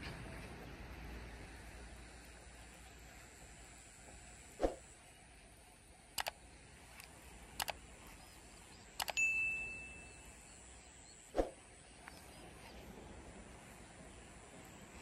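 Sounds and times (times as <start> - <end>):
mouse double-clicks: 6.2 - 6.4, 7.0 - 7.8, 8.9 - 9.2
bell ding: 9.2 - 10.2.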